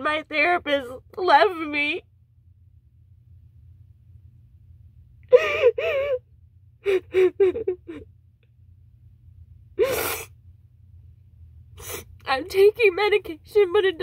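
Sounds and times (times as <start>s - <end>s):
woman sobbing: 5.2s - 8.1s.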